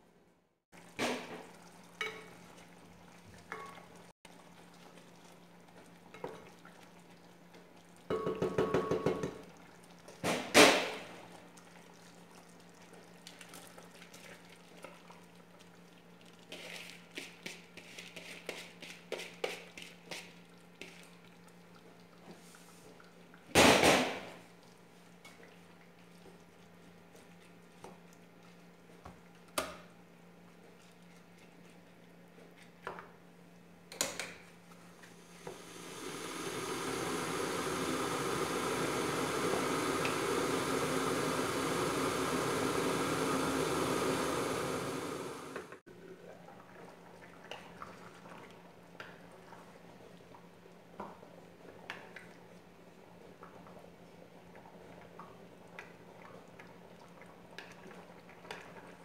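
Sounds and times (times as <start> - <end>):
pot and utensils clattering: 8.1 - 9.4
pot clunking on stove: 8.1 - 9.4.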